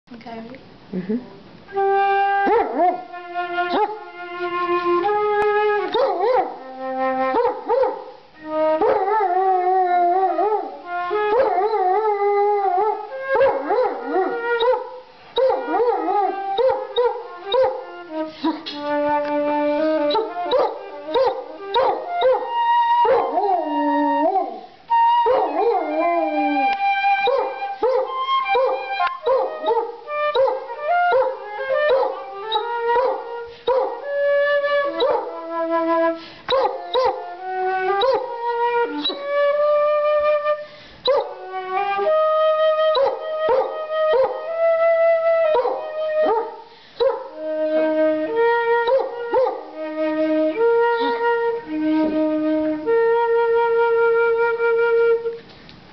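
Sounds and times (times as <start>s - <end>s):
flute playing held notes: 1.7s - 55.5s
dog howling: 8.6s - 18.6s, 20.0s - 34.0s, 38.0s - 39.3s, 42.9s - 44.5s, 45.4s - 47.8s, 48.8s - 49.9s, 50.9s - 51.4s.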